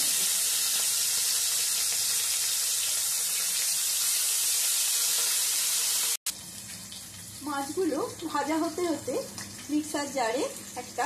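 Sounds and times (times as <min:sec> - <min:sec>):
fish sizzling in oil: 0:00.0 - 0:11.0.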